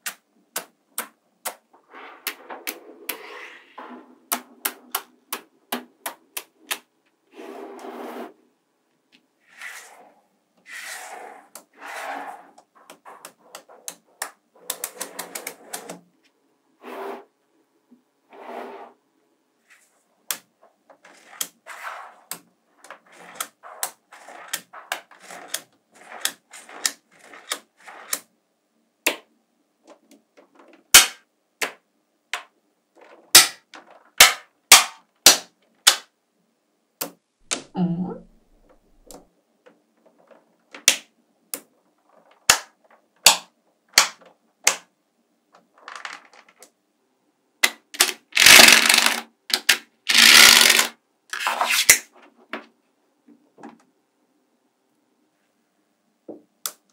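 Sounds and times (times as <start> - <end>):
magnetic balls clicking together: 47.6 - 50.9.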